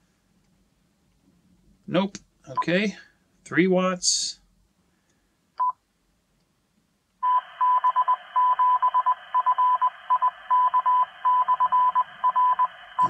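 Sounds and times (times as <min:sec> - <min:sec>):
morse code tone: 0:07.2 - 0:13.0
radio receiver hiss: 0:09.1 - 0:13.0.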